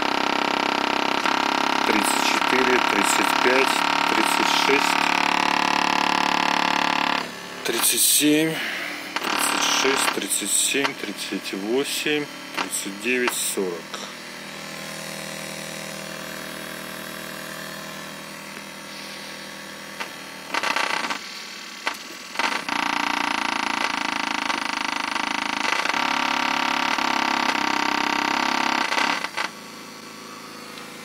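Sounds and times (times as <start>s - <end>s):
buzzing low test tone drone: 0.0s - 31.0s.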